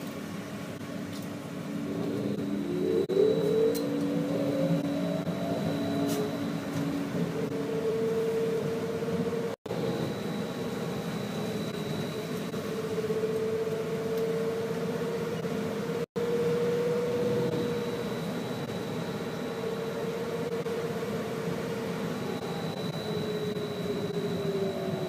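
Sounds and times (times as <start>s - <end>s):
bus cabin rumble: 0.0s - 13.0s
trolleybus electrical whine: 0.0s - 25.0s.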